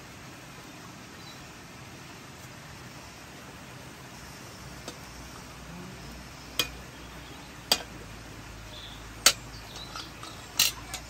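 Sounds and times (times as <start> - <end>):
metal spatula clinking on pots: 6.6 - 6.8, 7.6 - 8.0, 9.2 - 11.0.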